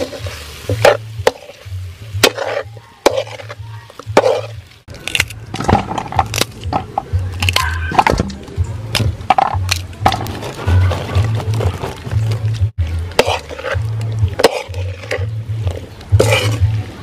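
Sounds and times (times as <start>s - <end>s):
metal ladle scraping wok: 0.0s - 4.9s, 9.3s - 17.0s
music with low bass beat: 5.4s - 17.0s.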